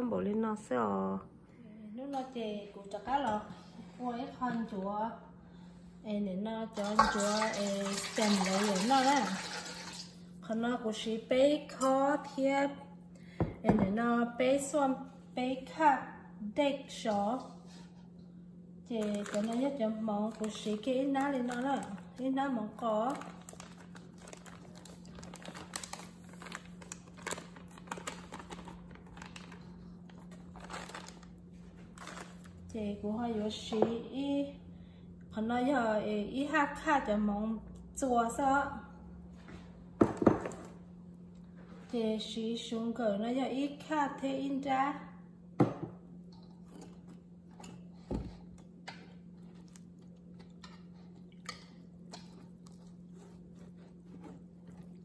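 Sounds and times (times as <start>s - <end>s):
faint steady hum: 0.0s - 55.0s
plastic bag crinkling: 19.0s - 22.2s, 22.8s - 32.6s.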